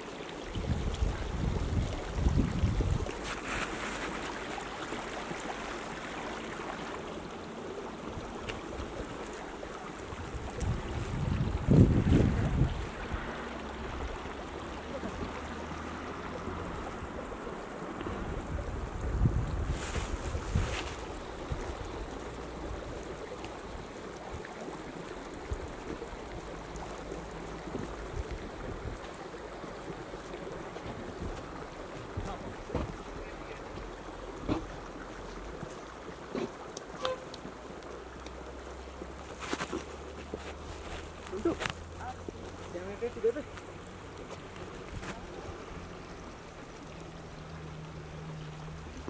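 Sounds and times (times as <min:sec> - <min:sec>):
wind against microphone: 0:00.4 - 0:04.1, 0:09.9 - 0:15.6, 0:16.4 - 0:24.5, 0:27.7 - 0:30.0.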